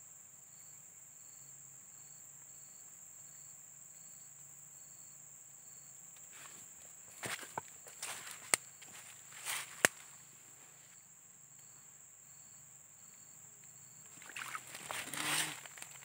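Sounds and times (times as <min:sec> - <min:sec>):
high insect whine: 0:00.0 - 0:16.0
rustling of grass and leaves: 0:06.2 - 0:11.0, 0:14.1 - 0:16.0
splash of muddy water: 0:14.1 - 0:16.0.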